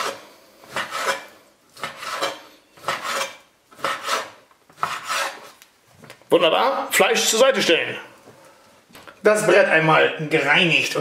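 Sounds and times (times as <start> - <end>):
knife slicing meat on board: 0.0 - 5.6.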